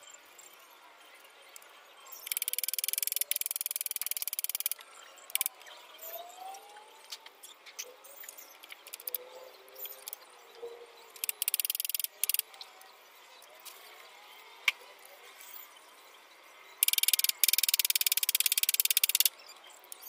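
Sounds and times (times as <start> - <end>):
fast clicking trill: 2.2 - 5.6, 8.6 - 9.2, 11.2 - 12.5, 16.8 - 19.4.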